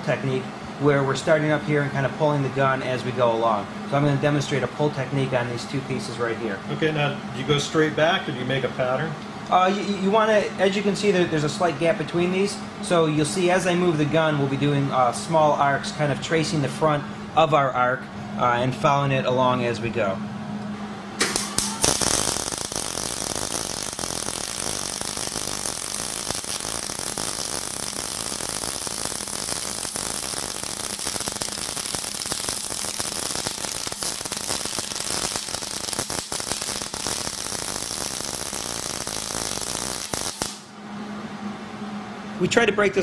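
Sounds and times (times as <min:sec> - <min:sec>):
welding arc crackling: 0:21.2 - 0:40.7.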